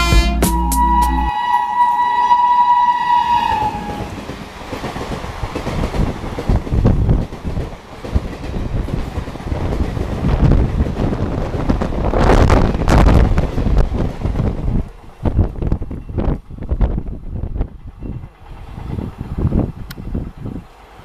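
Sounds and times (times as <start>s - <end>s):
train horn: 0.0s - 4.2s
train coaches rushing past: 0.0s - 21.0s
rush of wind: 2.9s - 21.0s
wheels clicking over rail joints: 3.4s - 21.0s.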